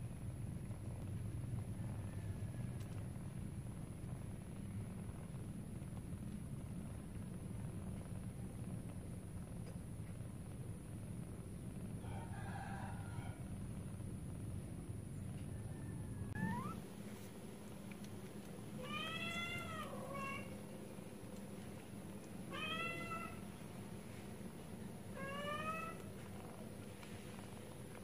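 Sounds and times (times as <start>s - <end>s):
kittens meowing: 16.2s - 16.8s, 18.8s - 20.6s, 22.5s - 23.5s, 25.1s - 26.2s.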